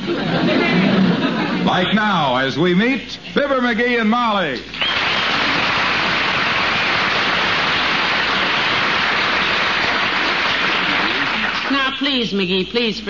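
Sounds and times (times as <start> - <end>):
audience applauding: 4.7 - 12.1.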